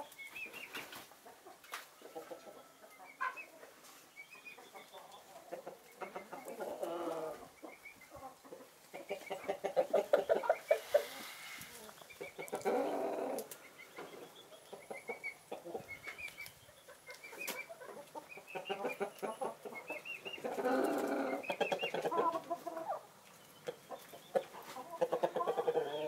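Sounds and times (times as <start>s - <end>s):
hens clucking: 0.0s - 26.0s.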